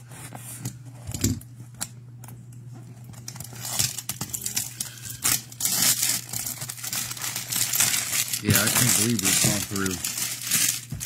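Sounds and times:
cardboard rustling: 0:05.6 - 0:11.0.

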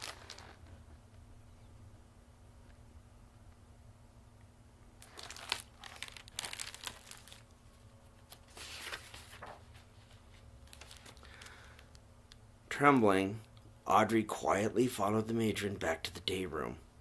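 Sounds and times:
paper pages rustling: 0:00.0 - 0:00.7, 0:05.0 - 0:07.5, 0:08.3 - 0:11.8.

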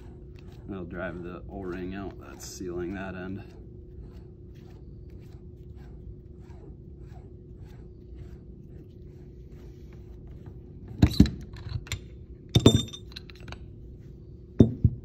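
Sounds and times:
metal knocks and clinks: 0:11.0 - 0:13.6, 0:14.6 - 0:15.0.

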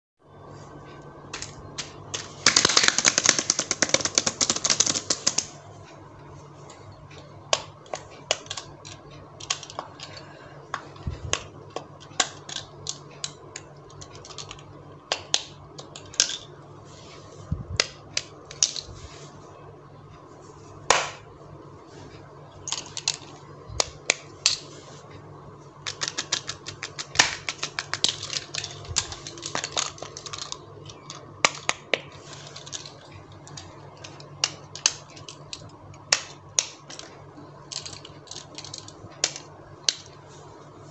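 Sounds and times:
plastic fidget toys clicking: 0:01.3 - 0:05.5, 0:07.5 - 0:16.4, 0:25.8 - 0:40.2.

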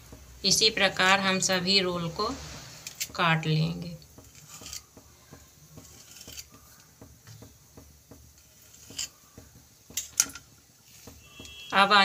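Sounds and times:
knife cutting dough on wooden board: 0:04.1 - 0:10.2.

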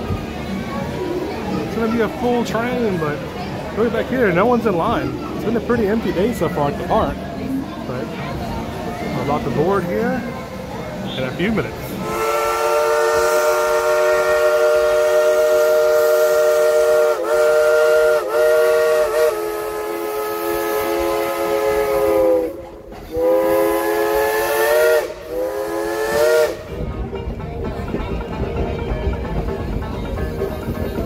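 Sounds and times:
steam locomotive whistle: 0:12.0 - 0:26.7.

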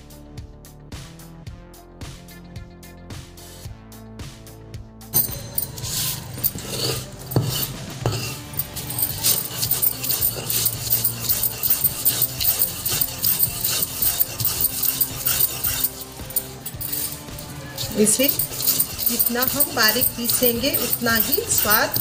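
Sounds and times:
background music: 0:00.0 - 0:22.0
grinding stone scraping on slab: 0:05.2 - 0:22.0.

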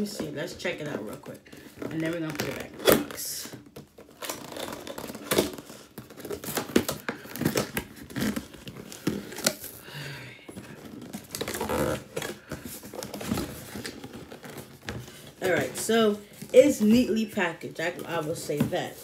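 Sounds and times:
cardboard and packaging rustling: 0:00.0 - 0:19.0
packaging tearing: 0:03.8 - 0:09.9, 0:10.7 - 0:15.3.

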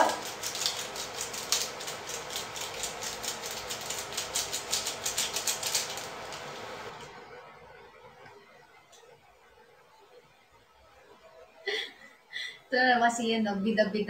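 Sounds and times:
food sizzling in hot oil: 0:00.0 - 0:07.0
oil popping and crackling: 0:00.0 - 0:07.2.

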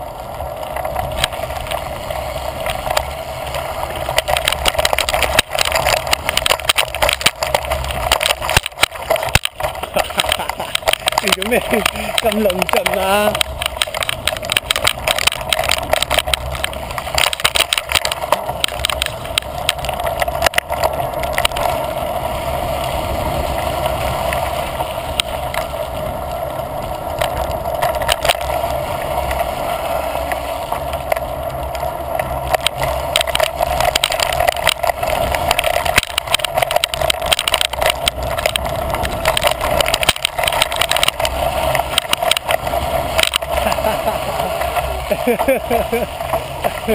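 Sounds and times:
bike rattles and clicks: 0:00.0 - 0:46.9
bike tyres rumbling over dirt: 0:00.0 - 0:46.9
steady rushing noise: 0:00.0 - 0:46.9.

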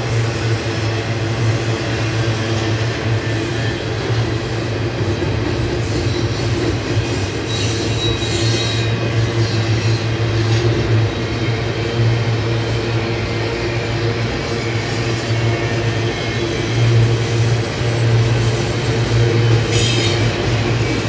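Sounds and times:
train wheels rumbling on rail: 0:00.0 - 0:21.0
high wheel squeal: 0:05.9 - 0:10.1, 0:18.4 - 0:21.0.

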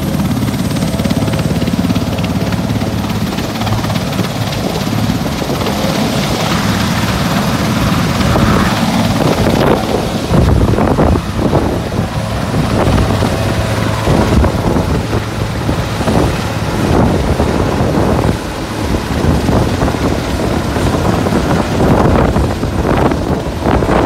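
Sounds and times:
helicopter hovering: 0:00.0 - 0:24.0
rotor wash buffeting microphone: 0:00.0 - 0:24.0.

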